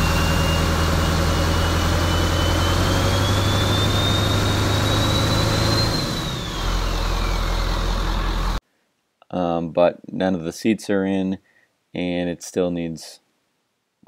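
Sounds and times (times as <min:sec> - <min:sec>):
thin high whine: 0:00.0 - 0:08.6
truck engine idling: 0:00.0 - 0:08.6.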